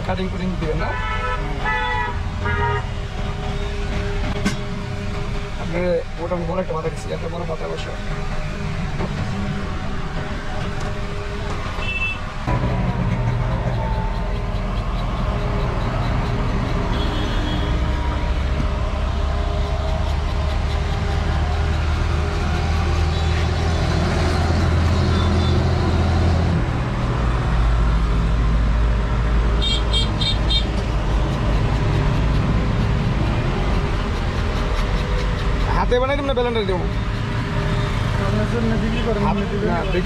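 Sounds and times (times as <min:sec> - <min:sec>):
vehicle engines humming: 0:00.0 - 0:40.0
car horns beeping: 0:00.8 - 0:03.7, 0:10.8 - 0:12.4, 0:13.5 - 0:18.1, 0:25.1 - 0:25.6, 0:29.6 - 0:30.8.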